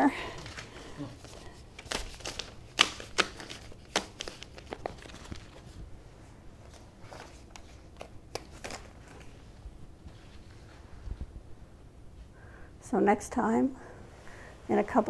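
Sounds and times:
rustling and crinkling: 0:00.2 - 0:11.4.

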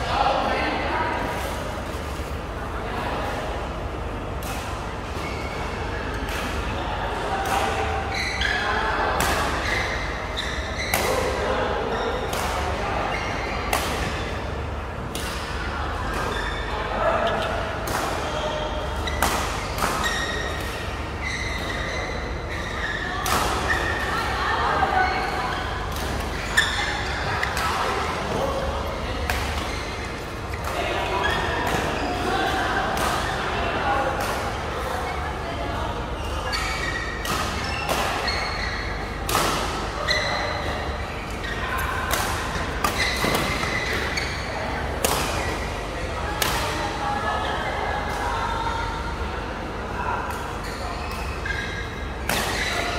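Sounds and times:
shoes squeaking on court: 0:09.5 - 0:11.2, 0:18.2 - 0:24.0, 0:25.0 - 0:28.6, 0:29.3 - 0:32.4, 0:36.1 - 0:44.6, 0:50.5 - 0:52.9
badminton rackets hitting shuttlecock: 0:45.0 - 0:45.5.

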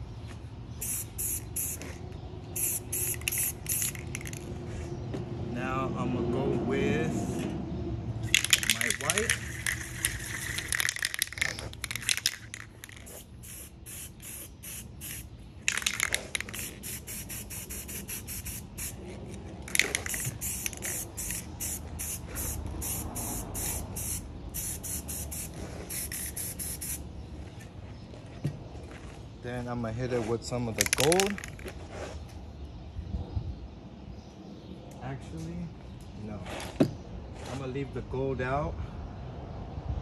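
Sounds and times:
spray paint can bursts: 0:00.8 - 0:02.0, 0:02.6 - 0:04.5, 0:08.2 - 0:19.0, 0:19.6 - 0:27.0, 0:30.8 - 0:31.6.

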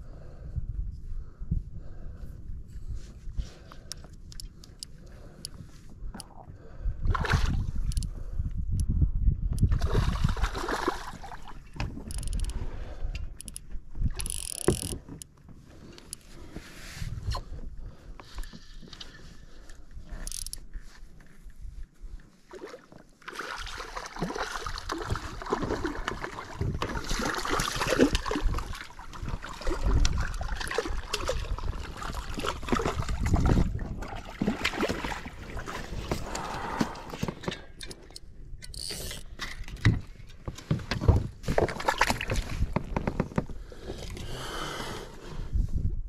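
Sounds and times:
knocks and rustles of gear: 0:34.4 - 0:43.6.

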